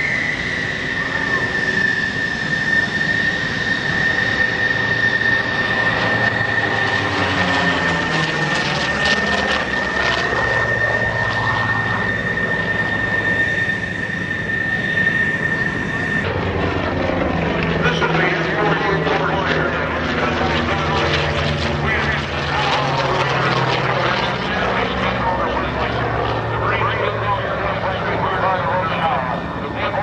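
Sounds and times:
plane whooshing overhead: 0.0s - 30.0s
propeller plane engine droning: 0.0s - 30.0s.

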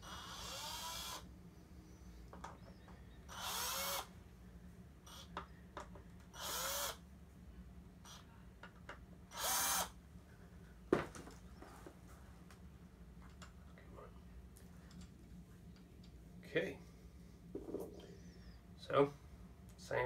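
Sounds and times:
electric screwdriver whirring: 0.0s - 1.2s, 3.3s - 4.1s, 6.4s - 7.0s, 9.3s - 9.9s.

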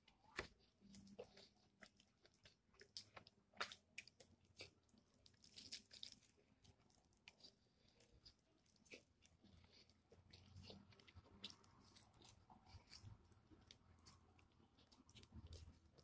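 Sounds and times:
crispy coating crunching: 0.1s - 16.0s
chewing: 0.3s - 16.0s.

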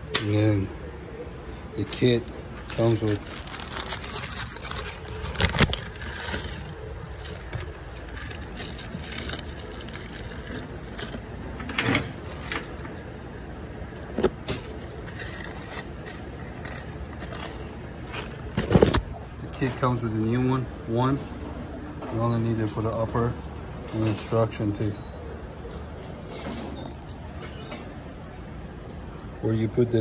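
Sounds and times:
steady background noise: 0.0s - 30.0s
packaging rustling: 1.8s - 11.3s, 14.0s - 19.1s.

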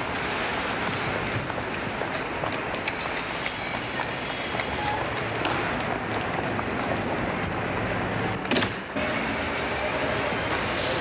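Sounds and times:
train rumble: 0.0s - 11.0s
high steady squeal: 0.2s - 1.5s, 2.8s - 5.8s.

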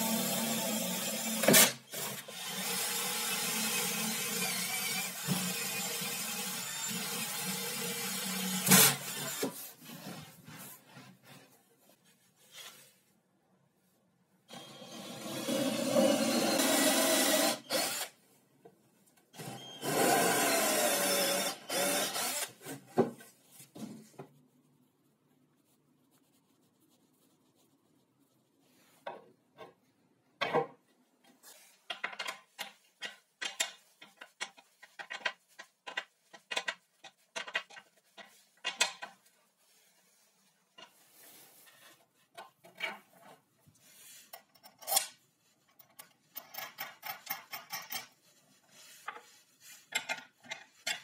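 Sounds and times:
cordless drill driving screws: 14.5s - 18.2s, 19.4s - 22.6s.

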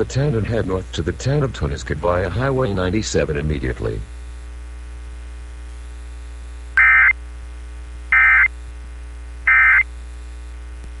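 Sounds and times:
steady low hum: 0.0s - 11.0s
warbling digital tone bursts: 6.8s - 7.1s, 9.5s - 9.8s.

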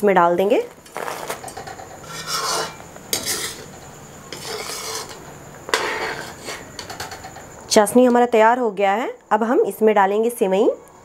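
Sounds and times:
metal spoon scraping a pan: 0.8s - 7.4s.

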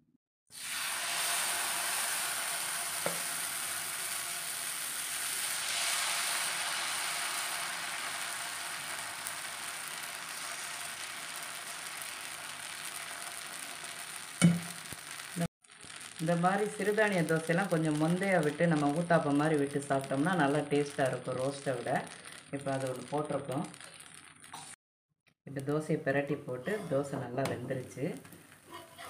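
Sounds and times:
batter sizzling on a griddle: 0.5s - 24.8s
sharp knock: 14.4s - 14.8s.

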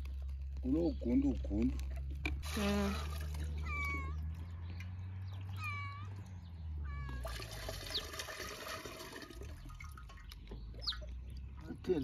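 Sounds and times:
cat meowing: 3.5s - 4.3s, 5.5s - 6.2s, 6.8s - 7.2s
water pouring through sieve into pot: 7.2s - 10.3s.

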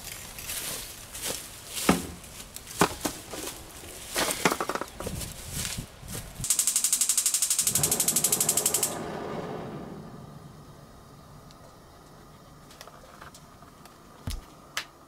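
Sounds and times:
gas stove igniter ticking: 6.5s - 9.1s
burner flame rushing: 7.6s - 12.7s.

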